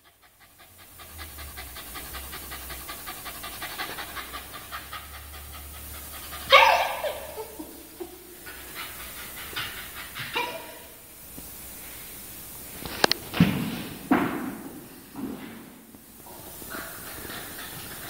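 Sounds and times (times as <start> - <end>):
dog panting rapidly: 0.0 - 11.1, 16.3 - 18.0
dog crying short: 6.5 - 7.6.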